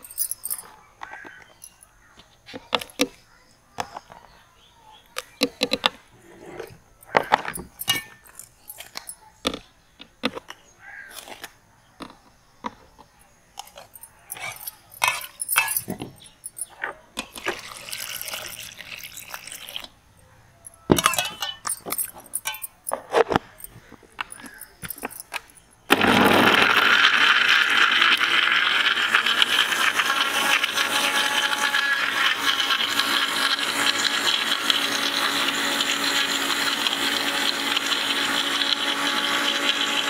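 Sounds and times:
spoon and steel bowls clinking: 0.0s - 1.9s, 6.6s - 9.4s, 13.6s - 19.9s, 20.6s - 25.9s.

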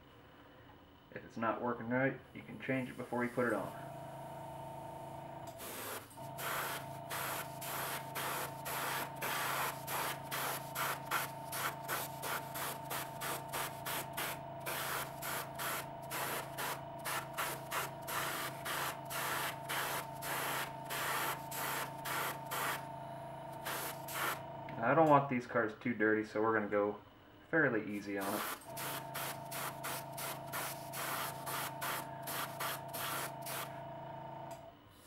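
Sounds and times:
compressor humming: 0.0s - 35.0s
airbrush spraying hiss: 5.5s - 22.8s, 23.6s - 24.4s, 28.2s - 33.7s.

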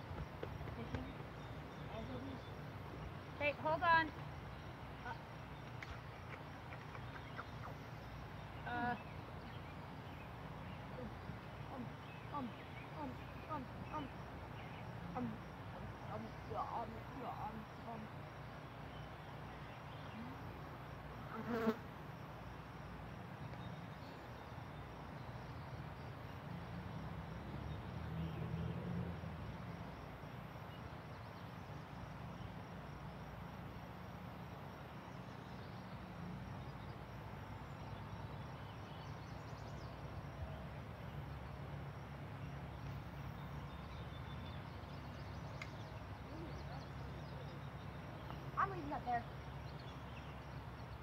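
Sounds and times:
buzzing of flying insects: 19.9s - 22.8s.

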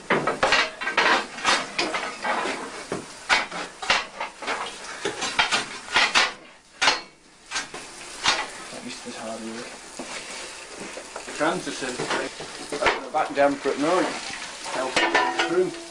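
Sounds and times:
metal tools clanking and scraping: 0.4s - 8.6s, 13.8s - 15.9s.

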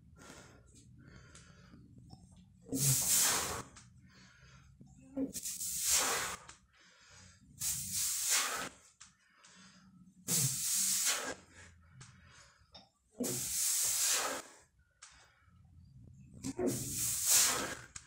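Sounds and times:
man breathing hard: 0.0s - 2.0s, 2.8s - 4.8s, 5.6s - 15.8s.

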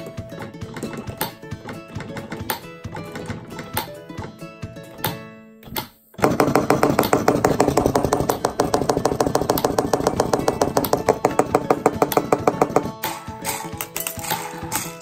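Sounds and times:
solenoid rapidly hammering: 6.2s - 15.0s.

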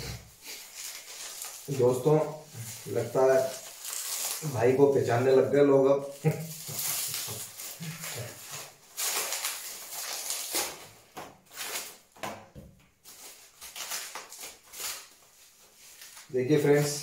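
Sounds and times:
plastic bag crinkling: 0.4s - 10.9s.

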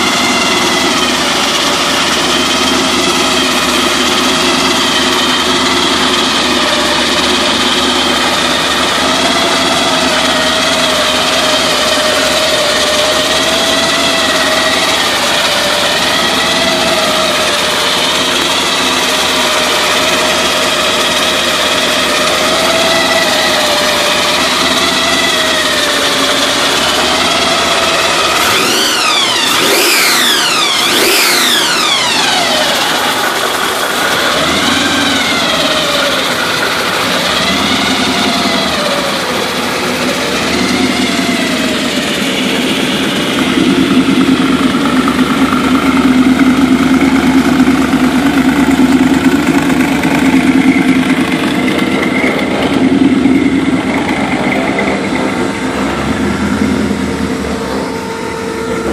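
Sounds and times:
truck engine idling and revving: 0.0s - 58.9s.

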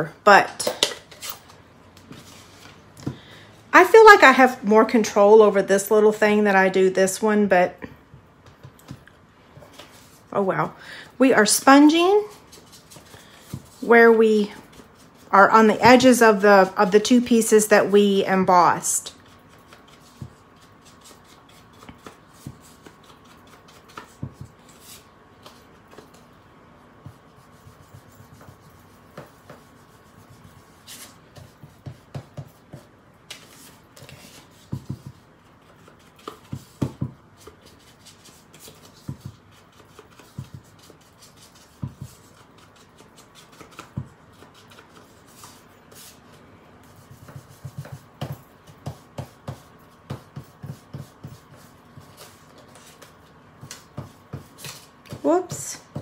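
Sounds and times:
brush rubbing on cardstock: 27.0s - 32.8s.

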